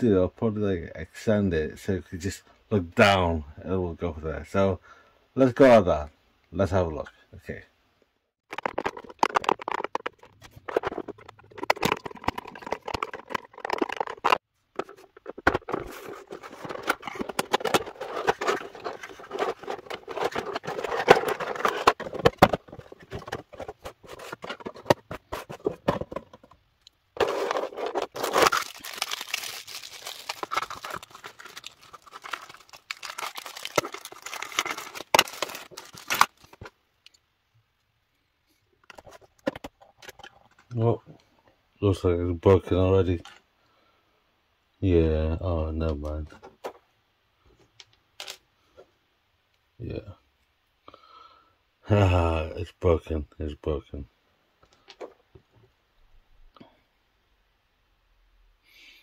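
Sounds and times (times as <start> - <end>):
plastic blister tray crackling: 8.5 - 26.6, 27.2 - 36.7
cardboard box crinkling and scraping: 8.6 - 26.4, 27.2 - 36.7.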